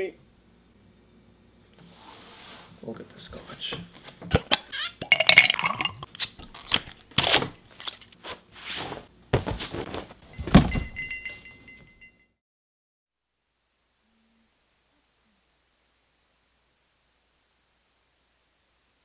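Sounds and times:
glass and bottles clinking: 0:04.4 - 0:06.3, 0:10.3 - 0:12.2.

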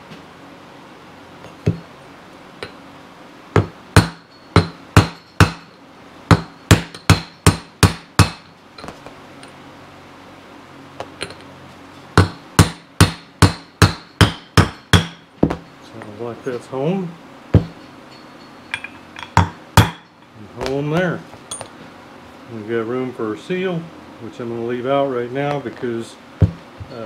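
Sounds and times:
hammer tapping metal: 0:01.5 - 0:01.9, 0:03.6 - 0:09.0, 0:12.2 - 0:16.2, 0:17.6 - 0:20.3, 0:26.4 - 0:27.0.

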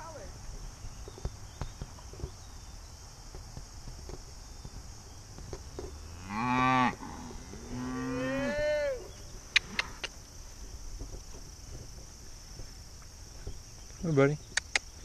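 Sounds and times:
cattle mooing: 0:06.1 - 0:09.1.

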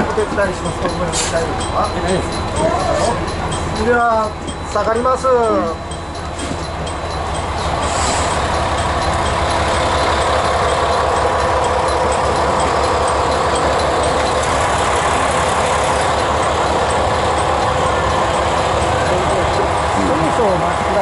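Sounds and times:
diesel railcar engine idling: 0:00.0 - 0:21.0.

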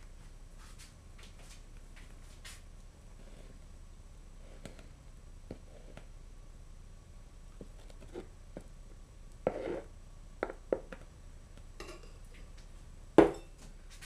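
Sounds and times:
dishes knocking and clinking: 0:11.8 - 0:12.2, 0:13.2 - 0:13.6.

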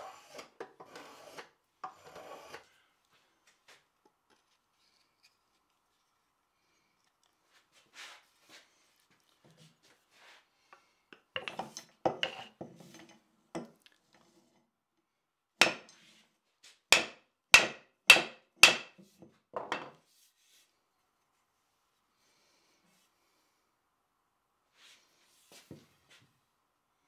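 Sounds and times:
wooden mallet knocking wood: 0:17.0 - 0:18.9.

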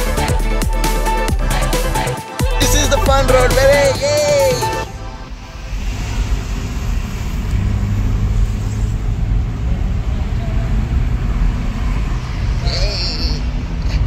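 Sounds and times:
car engine and tyre rumble: 0:04.8 - 0:14.0
tyres hissing on road: 0:05.3 - 0:09.6.

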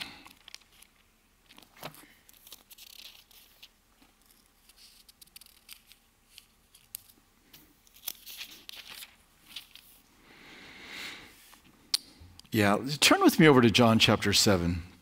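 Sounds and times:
pages turning rustling: 0:00.0 - 0:10.0.

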